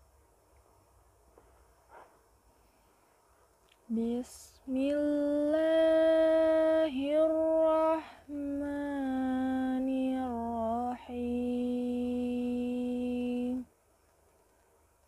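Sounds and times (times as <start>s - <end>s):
woman chanting recitation: 3.9s - 13.7s.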